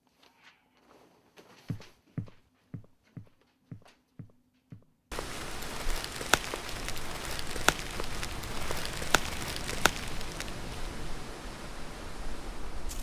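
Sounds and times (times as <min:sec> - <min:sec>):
footsteps on leaves and twigs: 0:05.1 - 0:10.9
steady outdoor hiss: 0:05.1 - 0:13.0.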